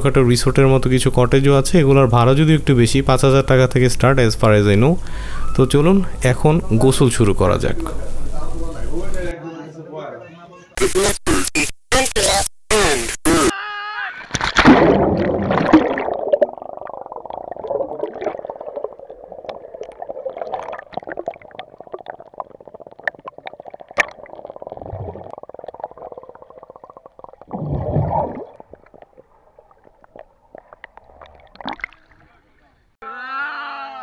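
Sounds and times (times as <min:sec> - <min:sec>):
loud splash: 0:14.3 - 0:16.6
bubbles crackling: 0:14.3 - 0:32.6
deep gush of water: 0:14.4 - 0:32.3.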